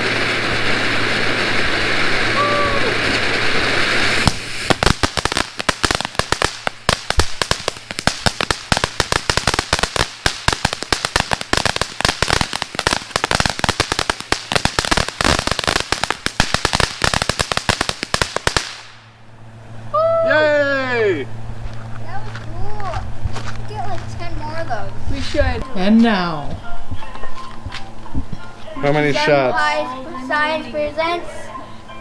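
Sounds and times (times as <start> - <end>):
firework crackling: 0.0 - 19.2.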